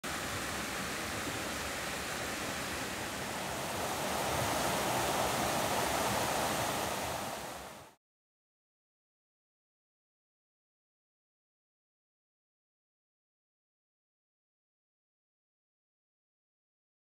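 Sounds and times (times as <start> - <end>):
stream rushing over rocks: 0.0 - 8.0.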